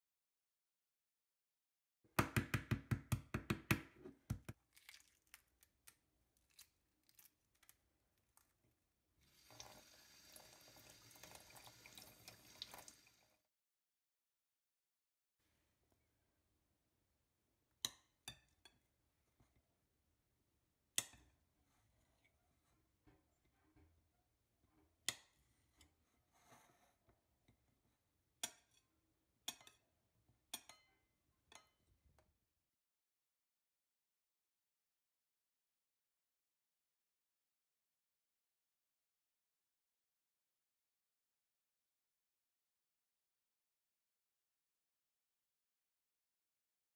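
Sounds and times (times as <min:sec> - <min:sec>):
egg knocking on countertop: 0:02.2 - 0:04.6
kitchen tap running: 0:09.2 - 0:13.4
knife clinking on ceramic plate: 0:29.5 - 0:29.8.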